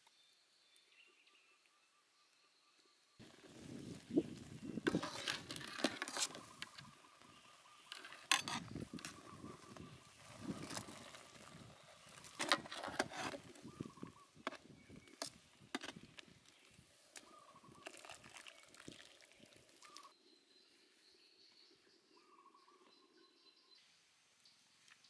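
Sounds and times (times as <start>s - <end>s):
bird chirping: 0.0s - 25.0s
water boiling: 8.8s - 13.6s, 17.1s - 20.1s.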